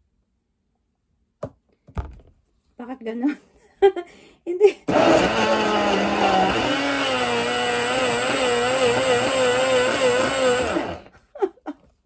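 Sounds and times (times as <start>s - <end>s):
blender motor chopping fruit: 4.9s - 11.1s.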